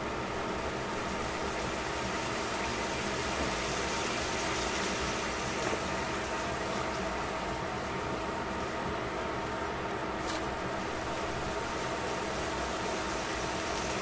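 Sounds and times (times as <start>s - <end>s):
vegetables sizzling in a pan: 0.0s - 7.6s, 10.8s - 14.0s
mechanical hum: 0.0s - 14.0s.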